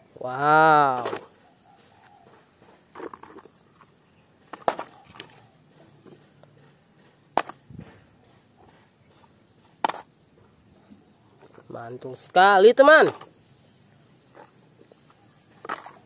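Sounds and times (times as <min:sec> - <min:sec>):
plastic toy vehicles clacking: 0:00.6 - 0:01.4, 0:02.2 - 0:10.5, 0:11.4 - 0:13.4, 0:14.3 - 0:16.0.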